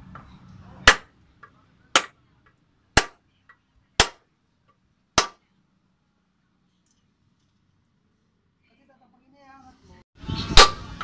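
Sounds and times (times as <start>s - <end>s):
hammer striking metal: 0.8s - 1.1s, 1.9s - 2.2s, 3.0s - 3.2s, 4.0s - 4.2s, 5.2s - 5.4s.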